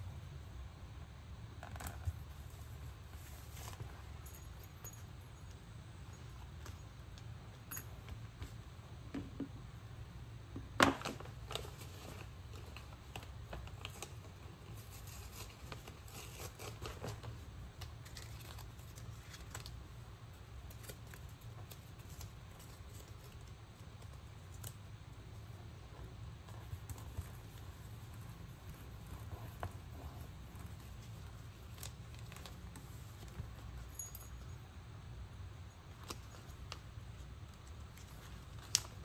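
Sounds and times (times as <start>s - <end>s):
low steady hum: 0.0s - 39.0s
paper rustling: 11.1s - 24.8s.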